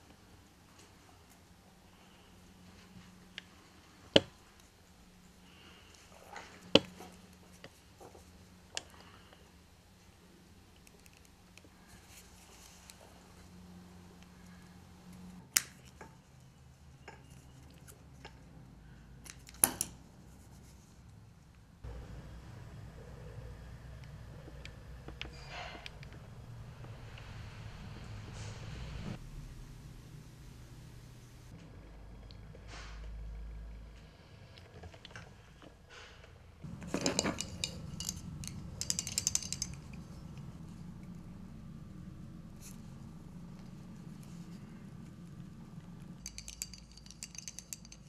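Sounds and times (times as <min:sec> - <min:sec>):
fishing reel clicking and rattling: 0:37.0 - 0:40.0, 0:46.2 - 0:48.0.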